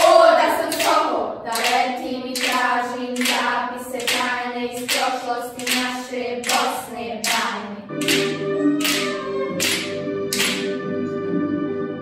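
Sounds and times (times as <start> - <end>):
children singing in unison: 0.0 - 8.2
rhythmic hand claps: 0.0 - 11.0.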